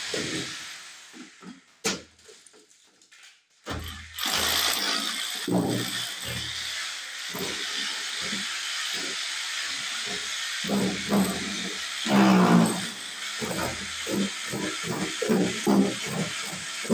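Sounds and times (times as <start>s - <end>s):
cordless drill boring into wood: 3.8s - 16.9s.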